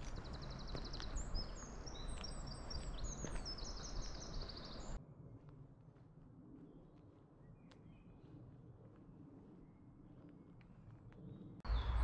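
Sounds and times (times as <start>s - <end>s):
songbird singing: 0.0s - 5.0s, 11.3s - 12.0s
footsteps on sandy path: 0.0s - 8.0s.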